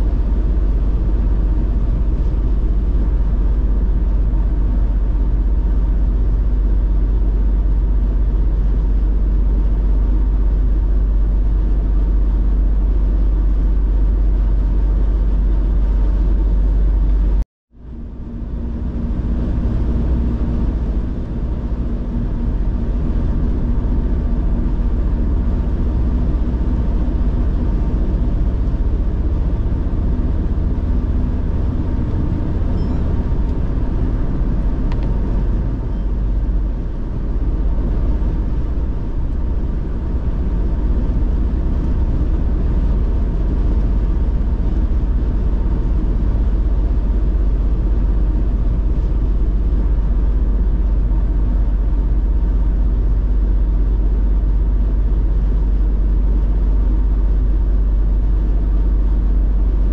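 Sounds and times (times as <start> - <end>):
car driving at speed: 18.6 - 46.4.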